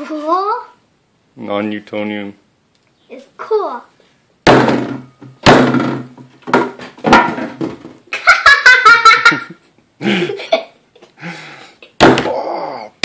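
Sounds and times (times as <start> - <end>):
fist punching oobleck thunks: 4.5 - 7.3, 12.0 - 12.5
burst of laughter: 8.2 - 10.7.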